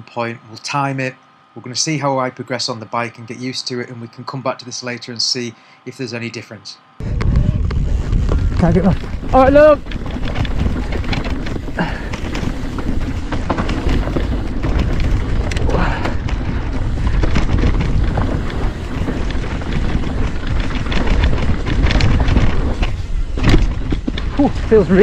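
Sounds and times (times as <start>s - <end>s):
bike rolling on dirt trail: 7.0s - 25.0s
wind buffeting microphone: 7.0s - 25.0s
bike clattering over bumps: 7.1s - 25.0s.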